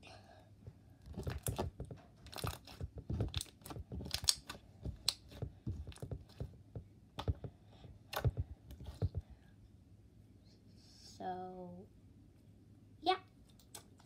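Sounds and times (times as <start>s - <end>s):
sticky slime clicks and pops: 3.3s - 5.2s.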